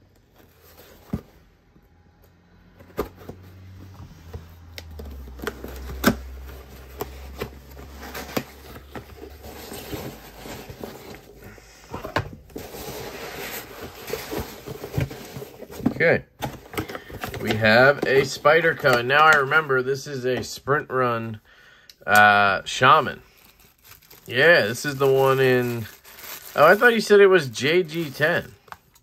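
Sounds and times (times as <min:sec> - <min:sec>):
packaging rubbing and scraping: 0:02.8 - 0:20.0, 0:22.9 - 0:28.7.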